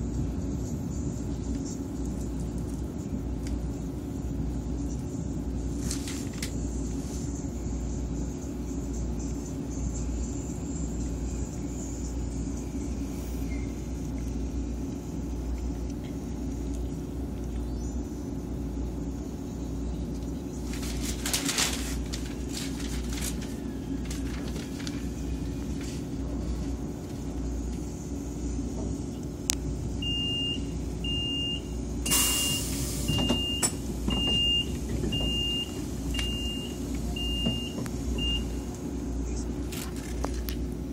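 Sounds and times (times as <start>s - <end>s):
train interior low hum: 0.0s - 40.9s
door warning beeps: 30.0s - 38.6s
burst of hissing air: 32.1s - 33.2s.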